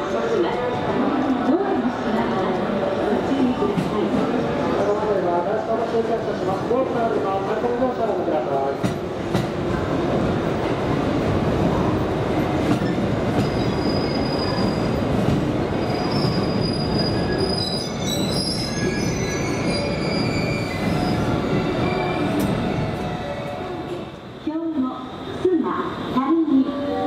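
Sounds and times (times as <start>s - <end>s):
train rumbling: 0.0s - 27.0s
wheel and brake squeals: 12.8s - 14.9s, 15.8s - 22.5s.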